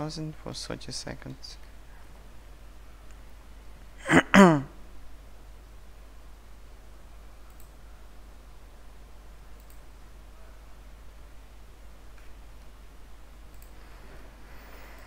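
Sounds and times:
man's short vocal sound: 4.0 - 4.8
computer mouse clicks: 7.5 - 7.8, 9.5 - 9.9, 13.4 - 13.8.

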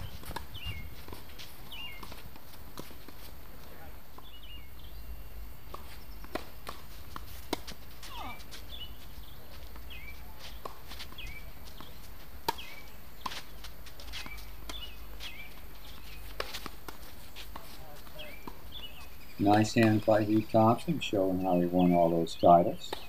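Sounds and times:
small bird chirping: 0.0 - 1.0, 1.6 - 2.1, 4.2 - 6.4, 8.1 - 10.3, 14.2 - 16.3, 18.2 - 22.6
tennis ball hit and bouncing: 0.2 - 4.3, 5.6 - 18.8, 19.4 - 20.4.

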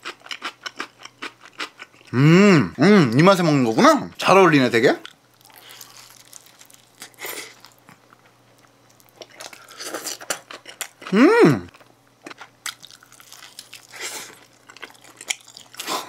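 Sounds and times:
person chewing: 0.0 - 3.2, 5.0 - 16.0
person humming: 2.1 - 3.2, 11.1 - 11.7.

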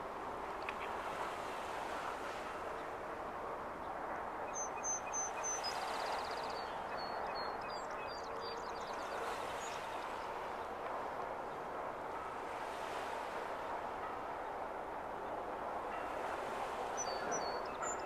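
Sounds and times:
wind and water hiss: 0.0 - 18.0
songbird singing: 4.5 - 10.7, 16.8 - 18.0.

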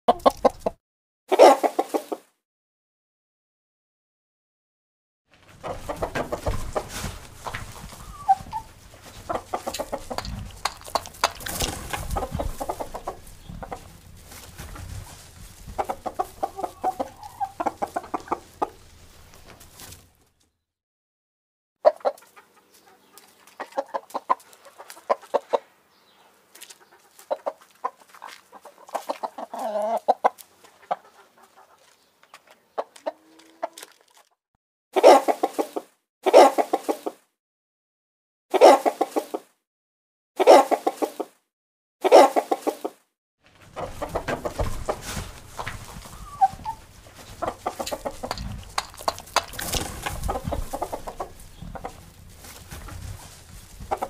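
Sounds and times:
chickens clucking: 0.1 - 2.3, 5.4 - 20.2, 21.8 - 34.3, 35.0 - 37.2, 38.5 - 39.5, 40.4 - 41.4, 42.0 - 54.0
chicken squawking: 1.3 - 2.2, 5.6 - 18.8, 26.7 - 32.0, 35.0 - 37.0, 38.5 - 39.4, 40.4 - 41.3, 42.0 - 42.9, 43.7 - 54.0.

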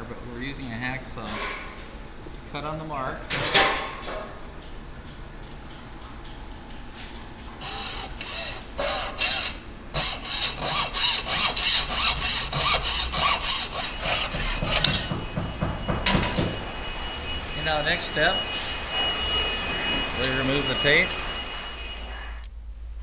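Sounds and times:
hacksaw cutting metal hose: 7.6 - 15.2.

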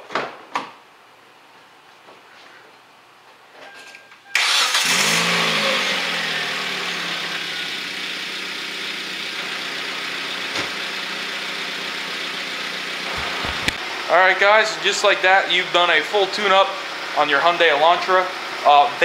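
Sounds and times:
car engine starting and idling: 4.4 - 14.1.

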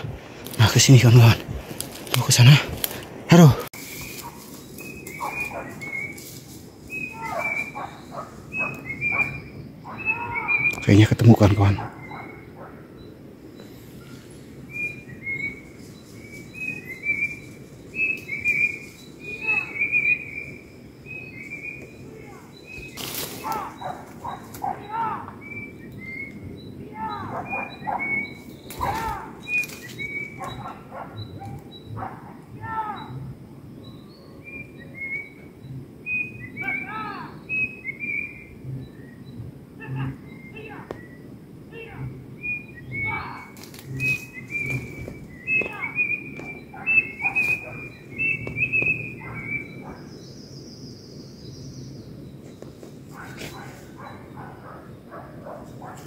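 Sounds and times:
small birds chirping: 0.0 - 56.0
dogs baying in the distance: 4.1 - 6.2, 7.0 - 10.8, 11.4 - 13.0, 23.4 - 25.4, 26.9 - 29.5, 30.1 - 33.4, 44.7 - 50.2, 53.1 - 56.0.

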